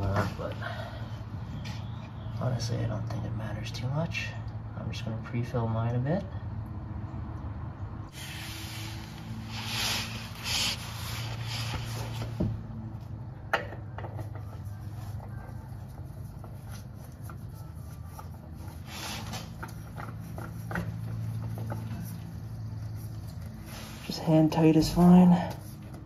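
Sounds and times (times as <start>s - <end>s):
oil filter clicking and scraping: 13.6s - 23.7s.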